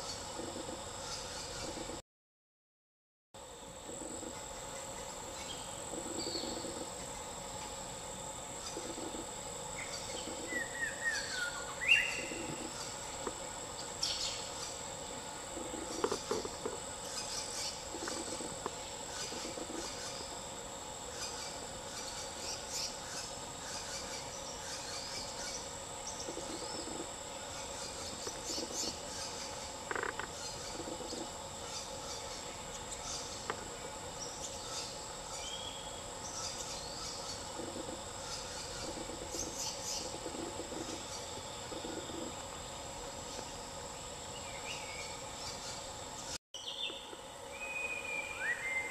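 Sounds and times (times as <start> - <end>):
insect chorus drone: 0.0 - 2.0, 3.4 - 48.9
bird calls: 9.8 - 13.1.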